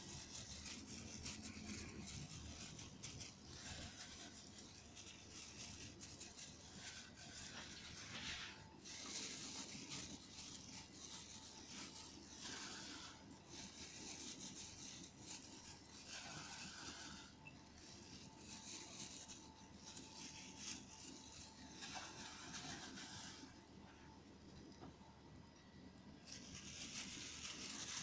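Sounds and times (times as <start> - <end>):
plastic glove rustling: 0.0 - 25.0, 25.9 - 28.0.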